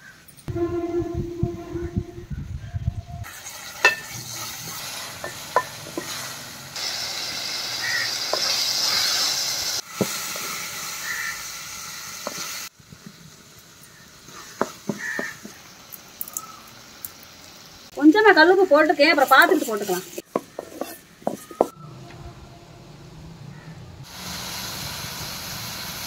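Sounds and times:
vegetables sizzling in oil: 3.2s - 21.7s, 24.1s - 26.0s
wooden spatula scraping pan: 19.2s - 21.8s.

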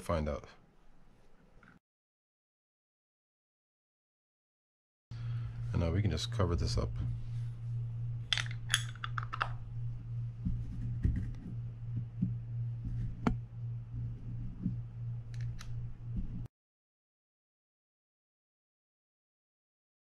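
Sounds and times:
steady low hum: 5.1s - 16.5s.

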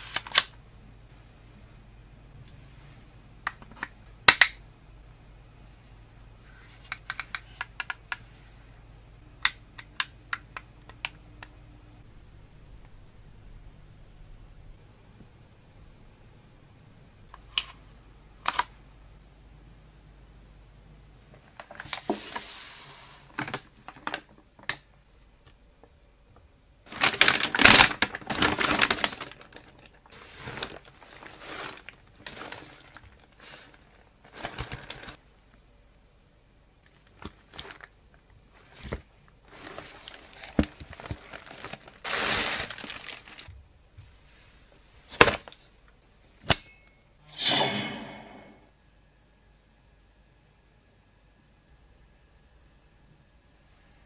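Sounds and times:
plastic bag crinkling: 26.9s - 35.2s, 39.4s - 43.5s.

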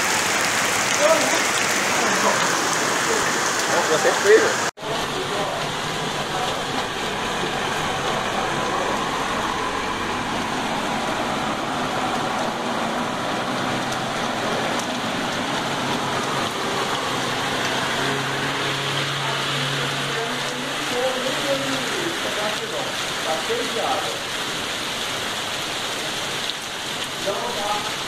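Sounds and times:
moving water: 0.0s - 28.0s
rain hissing: 0.0s - 28.0s
truck engine hum: 0.1s - 21.3s.

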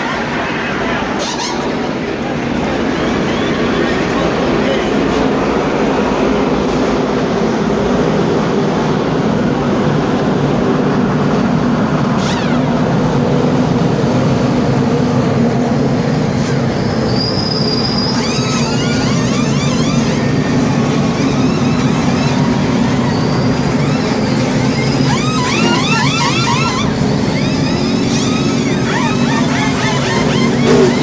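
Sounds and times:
race car engines running: 0.0s - 31.0s
impact wrenches whining: 16.4s - 31.0s.

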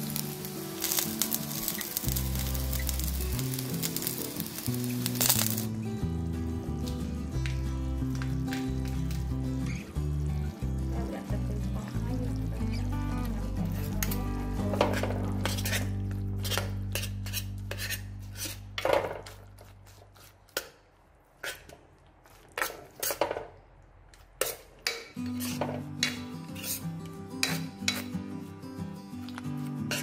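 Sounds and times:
background music low notes: 0.0s - 20.0s
metal ladle scraping clay pot: 14.8s - 20.6s, 24.4s - 28.1s.

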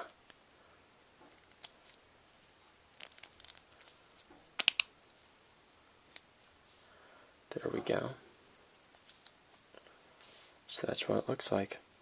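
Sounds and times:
handling rustle: 1.2s - 6.9s, 7.6s - 10.6s.

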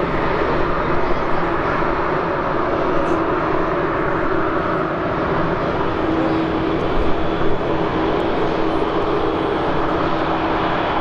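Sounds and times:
steady engine hum: 0.0s - 11.0s.

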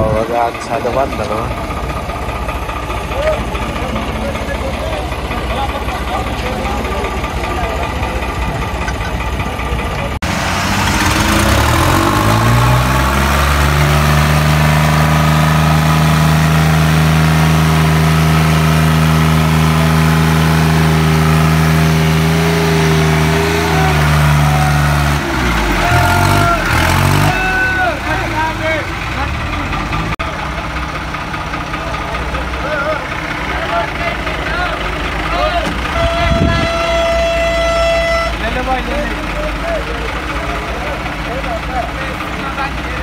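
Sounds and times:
tractor diesel engine straining: 0.0s - 43.0s
people shouting: 23.2s - 28.4s.

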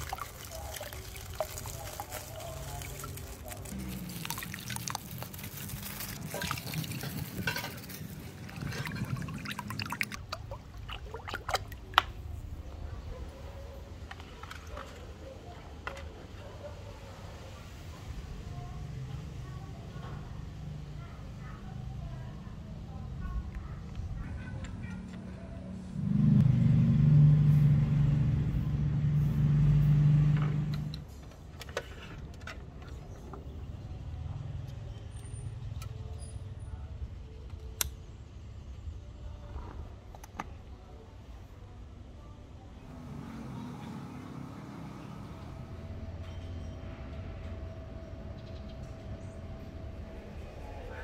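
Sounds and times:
water pouring and gurgling: 0.0s - 12.2s.

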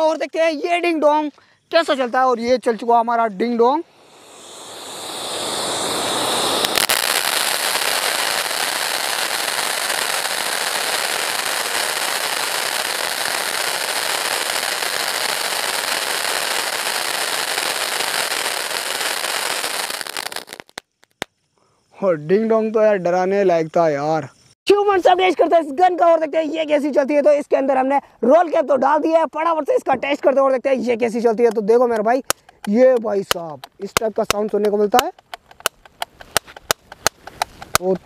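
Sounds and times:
firework fountain hissing: 3.2s - 21.3s
firework sharp crack: 3.9s - 21.3s, 35.0s - 38.0s.

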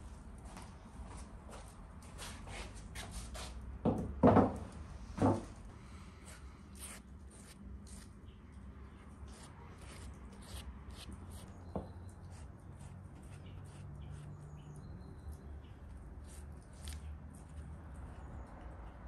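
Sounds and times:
pastry brush strokes on dough: 5.9s - 14.4s, 16.2s - 17.1s.

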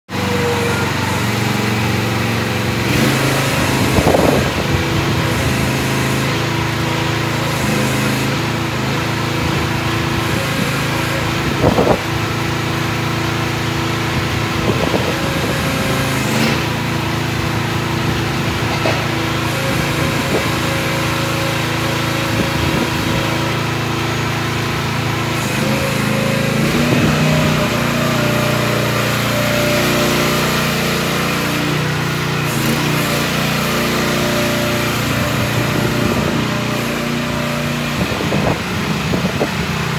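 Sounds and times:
excavator engine running: 0.1s - 39.9s
excavator clunks: 18.5s - 19.3s.

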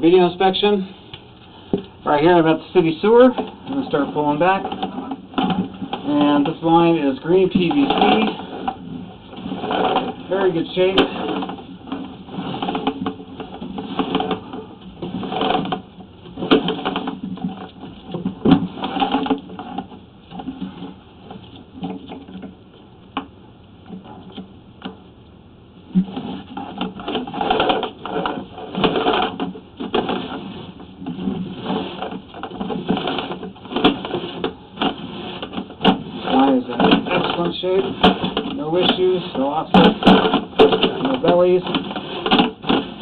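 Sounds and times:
cable reel rattling and clicking: 2.4s - 15.8s, 26.2s - 43.0s.

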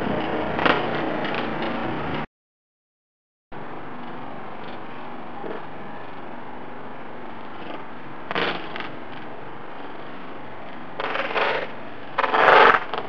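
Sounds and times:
bike tyres scraping and rattling: 0.0s - 2.2s, 7.2s - 13.0s.

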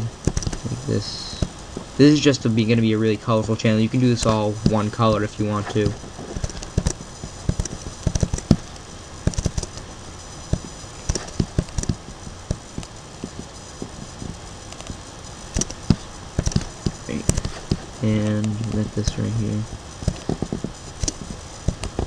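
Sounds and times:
computer mouse clicking: 9.3s - 9.8s.

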